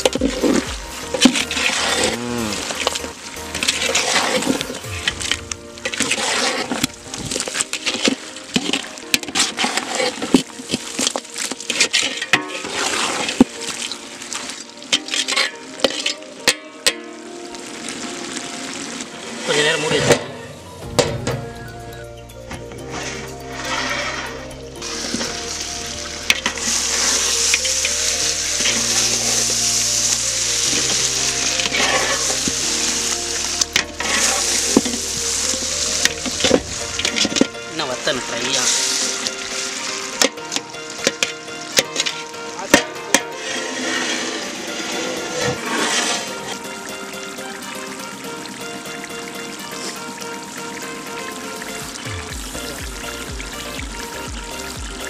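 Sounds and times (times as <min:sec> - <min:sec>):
metal ladle scraping a pot: 0:00.0 - 0:14.0, 0:14.9 - 0:17.0, 0:22.8 - 0:46.7.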